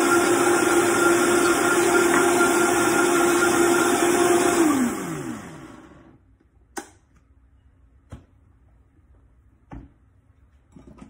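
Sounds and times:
blender motor spinning down: 0.0 - 6.2.

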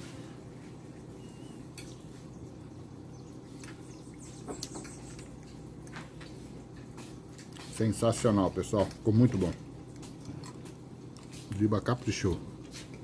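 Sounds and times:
low hum: 0.0 - 11.3
faint bird chirp: 1.0 - 5.7.

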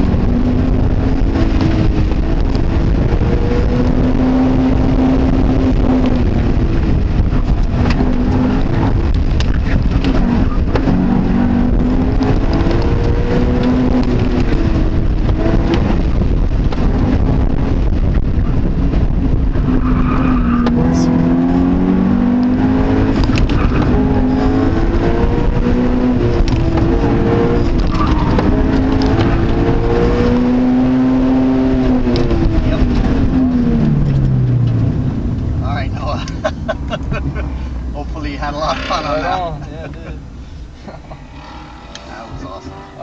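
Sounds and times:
car engine revving: 0.0 - 43.0.

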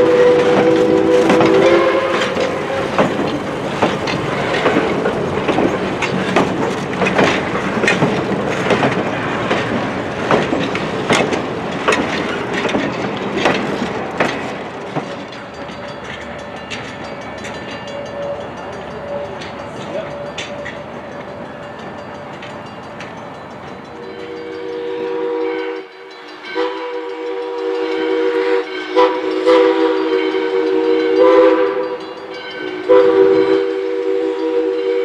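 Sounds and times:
steam whistle chord: 0.0 - 3.0, 24.0 - 35.0
train wheels clicking over rail joints: 0.0 - 25.0.

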